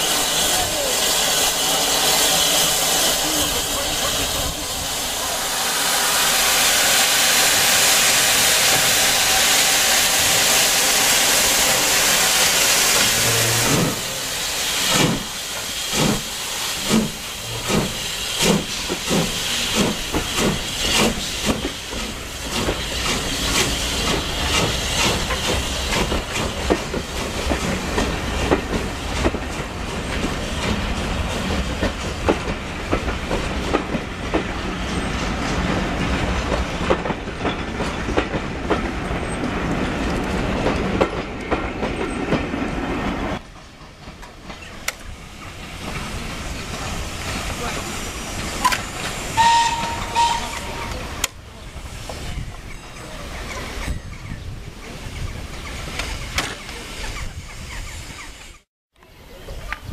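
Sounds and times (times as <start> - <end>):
steam hissing: 0.0 - 38.0, 44.6 - 54.1
steam locomotive chuffing: 0.0 - 59.9.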